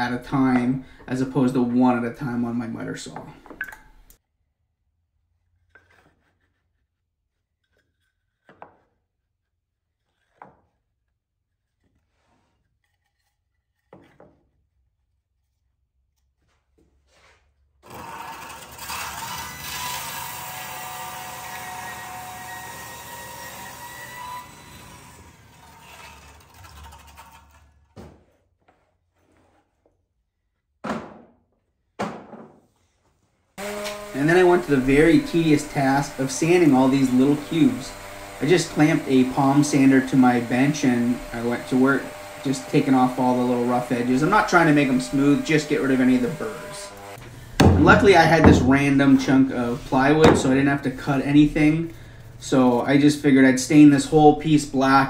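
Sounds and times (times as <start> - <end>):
table saw running: 17.8 - 27.6, 33.6 - 55.0
wood strips sliding rub: 25.8 - 29.9
sharp wooden knocks: 47.6 - 48.9.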